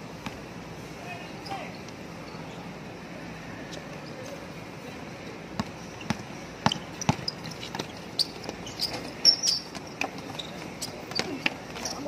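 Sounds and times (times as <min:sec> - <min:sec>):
basketball bouncing on concrete: 0:05.6 - 0:12.0
high-pitched squeaks: 0:06.7 - 0:12.0.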